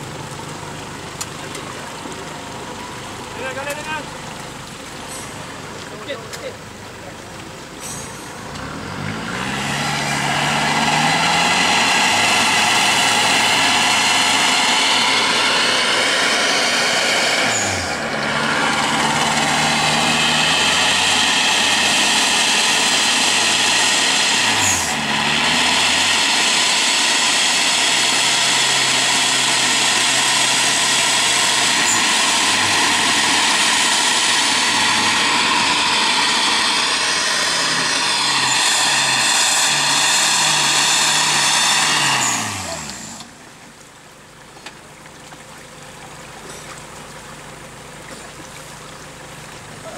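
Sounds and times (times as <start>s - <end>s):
diesel engine revving under load: 7.7s - 43.7s.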